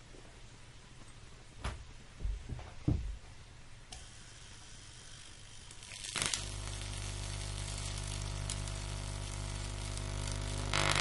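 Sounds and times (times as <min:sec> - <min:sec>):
loud electrical crackle: 0:03.9 - 0:11.0
plasma flame hissing: 0:03.9 - 0:11.0.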